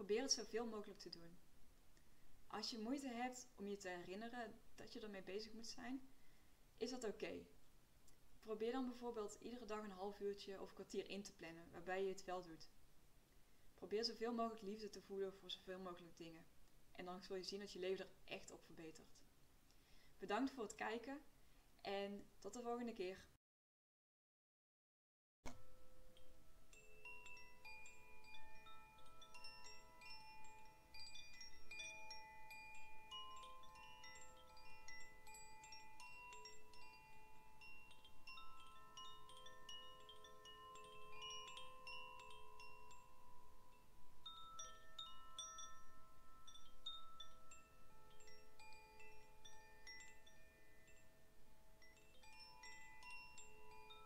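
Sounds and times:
chimes ringing: 0:25.6 - 0:54.0.

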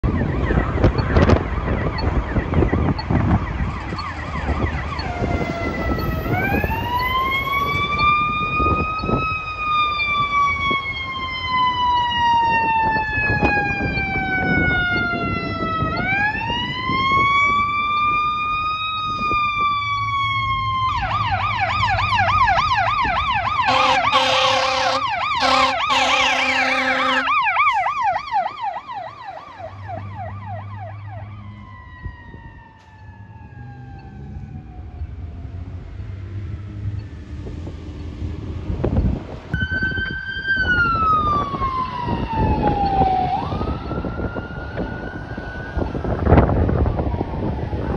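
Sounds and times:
siren yelp: 0:00.0 - 0:35.7, 0:39.5 - 0:47.9
siren wail: 0:00.0 - 0:37.5, 0:39.5 - 0:47.9
wind buffeting microphone: 0:00.0 - 0:47.9
air horn blasts: 0:23.7 - 0:27.4.

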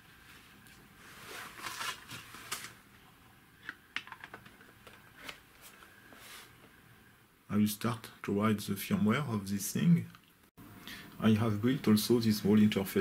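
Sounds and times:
plastic rustling scrape: 0:01.0 - 0:02.8.

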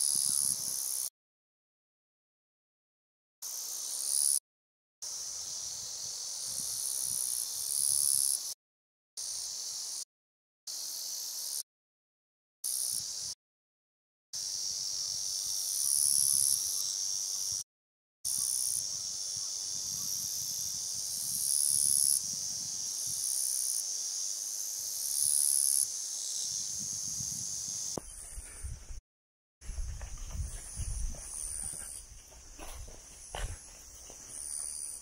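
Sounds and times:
insect chorus buzzing: 0:00.0 - 0:01.1, 0:03.4 - 0:04.4, 0:05.0 - 0:08.6, 0:09.2 - 0:10.0, 0:10.7 - 0:11.6, 0:12.7 - 0:13.4, 0:14.4 - 0:17.6, 0:18.3 - 0:29.0, 0:29.6 - 0:35.0
footsteps on grassy path: 0:29.6 - 0:35.0.

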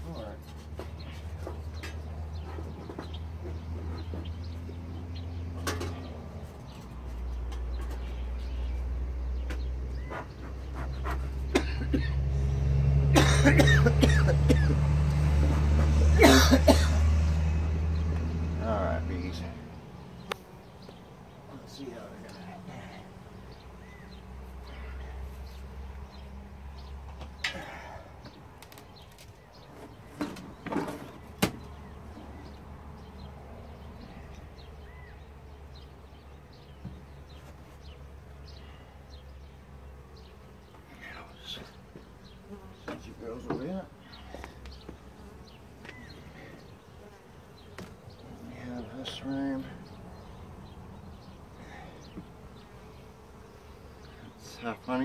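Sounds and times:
honeybees buzzing: 0:00.0 - 0:55.0
bellows huffing bursts of air: 0:51.1 - 0:52.9.

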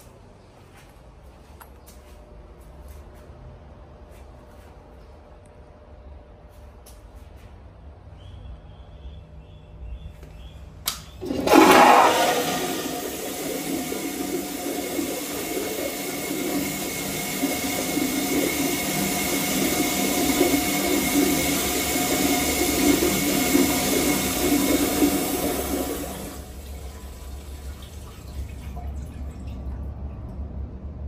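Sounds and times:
toilet flushing: 0:11.2 - 0:30.4.

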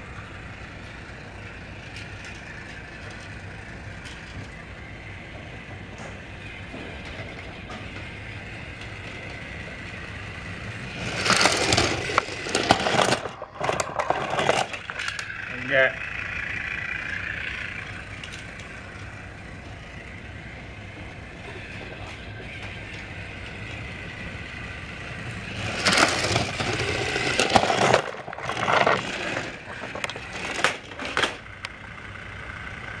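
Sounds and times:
toy train motor whine: 0:00.0 - 0:33.0
clattering and scraping: 0:05.3 - 0:20.1, 0:25.2 - 0:31.5.

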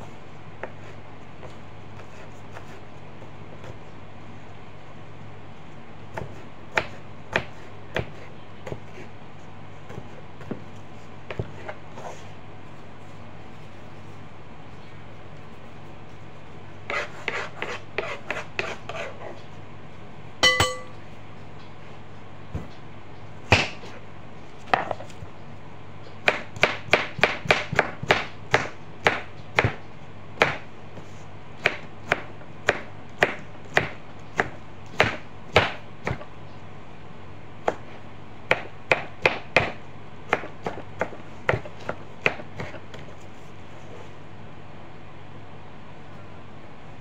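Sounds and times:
knife chopping on cutting board: 0:06.1 - 0:09.1, 0:09.9 - 0:11.8, 0:16.9 - 0:19.2, 0:23.5 - 0:24.0, 0:26.2 - 0:30.7, 0:31.6 - 0:36.3, 0:37.7 - 0:43.1.

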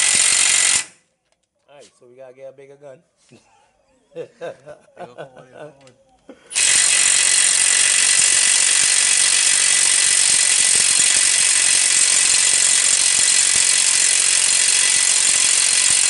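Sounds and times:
cordless impact wrench hammering: 0:00.0 - 0:01.0, 0:06.5 - 0:16.0.

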